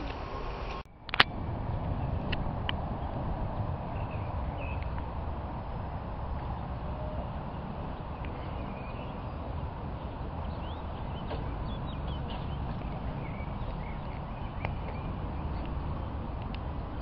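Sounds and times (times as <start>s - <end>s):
low outdoor rumble: 0.0s - 17.0s
small birds chirping: 3.0s - 17.0s.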